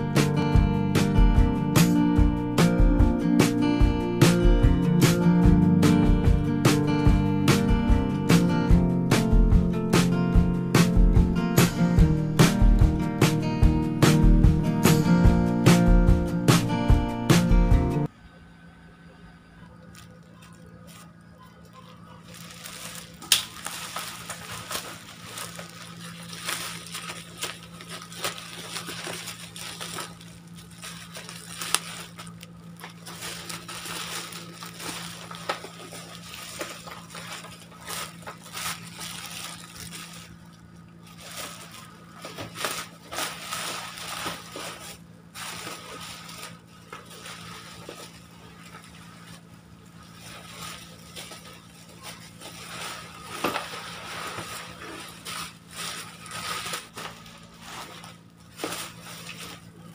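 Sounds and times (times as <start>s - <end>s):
low steady hum: 0.3s - 59.9s
bubble wrap crinkling: 19.8s - 59.9s.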